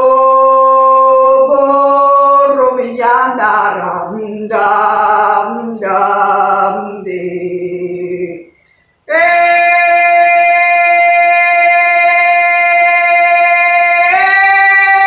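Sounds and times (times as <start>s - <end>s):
woman chanting wordless syllables: 0.0s - 8.5s.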